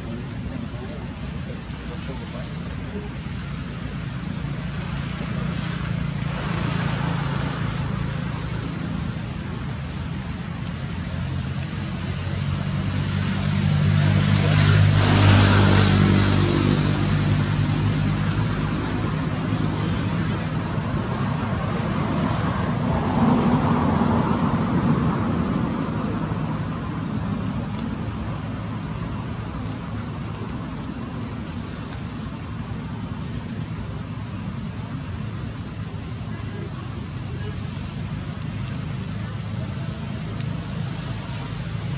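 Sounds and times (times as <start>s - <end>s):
outdoor background noise: 0.0s - 41.9s
vehicle engine passing by: 4.8s - 9.8s, 11.2s - 27.6s.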